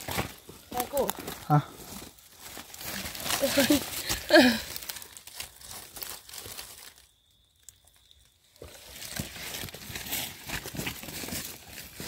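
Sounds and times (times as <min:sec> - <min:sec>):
dry leaves crackling and rustling: 0:00.0 - 0:12.0.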